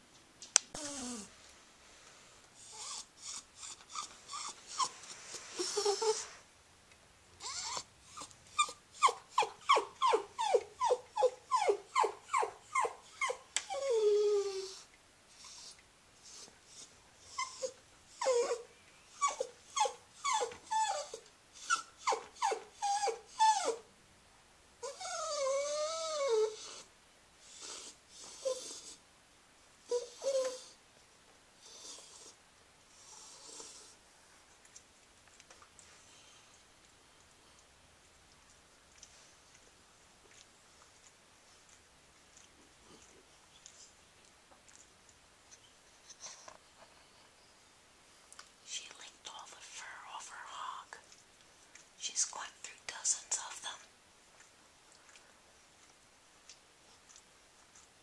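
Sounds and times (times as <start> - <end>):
dog whining: 0.7 - 1.3, 2.6 - 6.4, 7.4 - 23.9, 24.8 - 29.0, 29.9 - 30.8.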